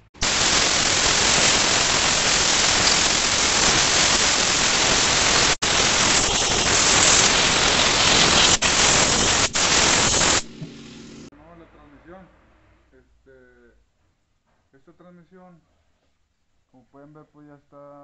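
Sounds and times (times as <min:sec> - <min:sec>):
compressed air blow gun hissing: 0:00.0 - 0:10.5.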